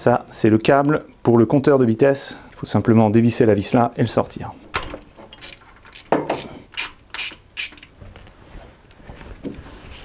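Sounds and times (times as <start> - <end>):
hand ratchet clicking: 5.4 - 7.9.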